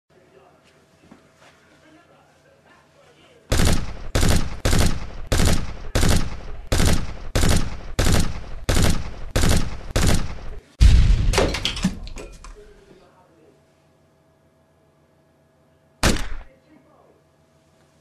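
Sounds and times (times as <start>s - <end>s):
pistol gunshots echoing: 3.5s - 10.6s, 16.0s - 16.5s.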